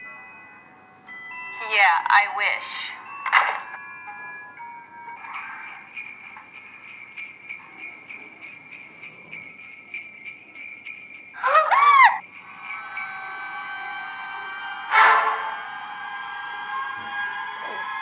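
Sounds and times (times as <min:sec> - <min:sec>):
sleigh bells jingling: 0:05.1 - 0:14.1.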